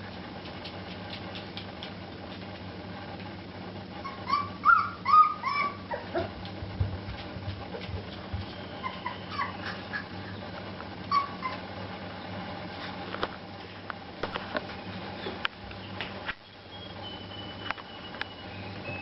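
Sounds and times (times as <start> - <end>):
steady low hum: 0.0 - 19.0
puppies yelping: 4.0 - 6.5, 8.4 - 12.3.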